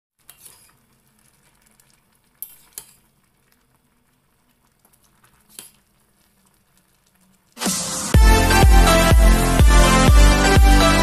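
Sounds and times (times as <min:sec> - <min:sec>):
soup bubbling in a pot: 0:00.1 - 0:07.6
ladle stirring: 0:00.2 - 0:07.4.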